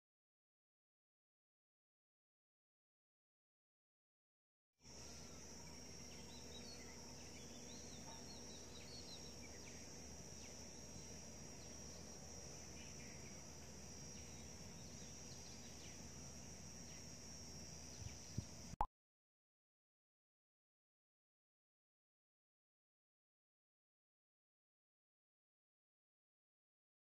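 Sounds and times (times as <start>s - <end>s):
high insect drone: 4.8s - 18.8s
small bird chirps: 4.9s - 16.2s, 17.8s - 18.8s.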